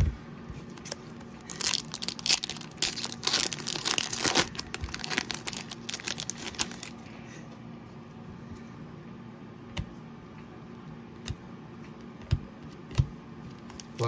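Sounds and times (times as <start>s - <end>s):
foil wrapper tearing and crinkling: 0.8s - 7.0s.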